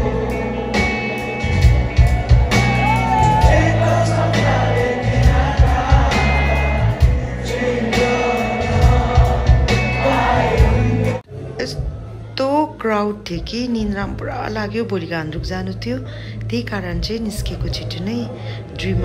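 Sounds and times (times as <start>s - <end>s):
live rock band playing: 0.0s - 11.2s
person singing: 3.1s - 11.2s.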